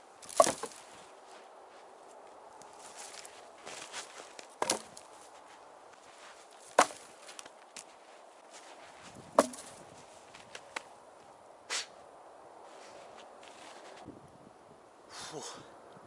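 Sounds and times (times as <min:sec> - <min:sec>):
logs knocking onto pile: 0:00.2 - 0:00.9, 0:03.0 - 0:05.1, 0:06.7 - 0:07.5, 0:09.3 - 0:09.8.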